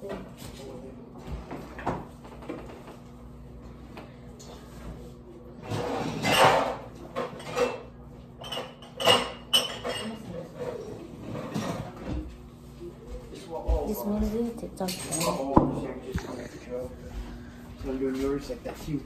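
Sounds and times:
dishes and glassware clinking: 0:05.7 - 0:10.8, 0:14.8 - 0:16.4.

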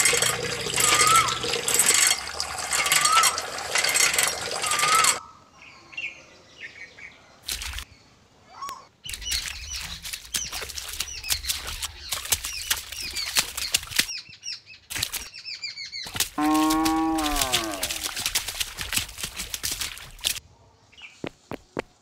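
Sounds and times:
wing flutters: 0:00.0 - 0:05.2, 0:09.0 - 0:14.1, 0:16.1 - 0:20.4
small birds chirping: 0:00.0 - 0:18.7
cow mooing: 0:16.4 - 0:18.2.

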